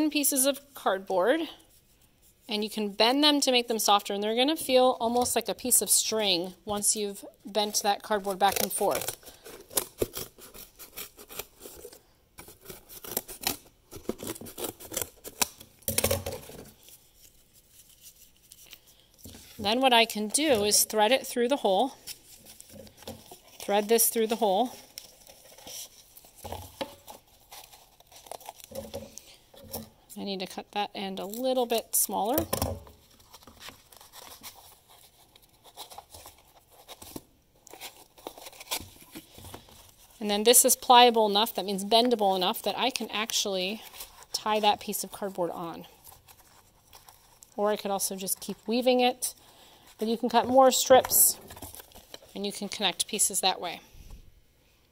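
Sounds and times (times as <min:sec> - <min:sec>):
scissors cutting cardboard: 0:08.2 - 0:15.6
cardboard crinkling: 0:21.8 - 0:29.3, 0:32.9 - 0:53.2.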